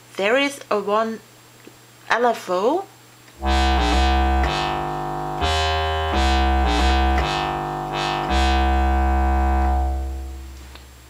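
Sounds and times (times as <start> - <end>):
analog synthesizer bass line: 3.4 - 11.0.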